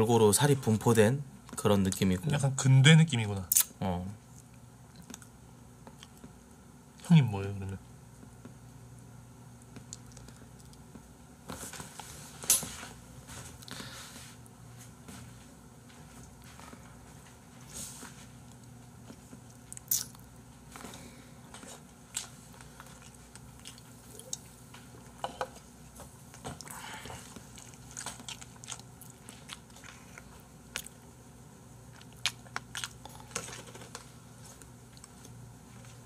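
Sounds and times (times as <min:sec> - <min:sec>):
chewing and crunching: 0:04.3 - 0:06.4, 0:09.7 - 0:11.0, 0:18.4 - 0:25.2, 0:26.2 - 0:31.1, 0:31.8 - 0:36.0.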